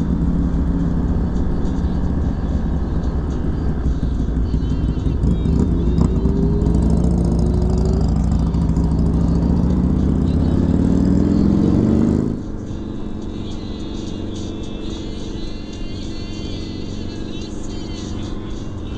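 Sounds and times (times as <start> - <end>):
motorcycle engine accelerating: 0.0 - 12.6.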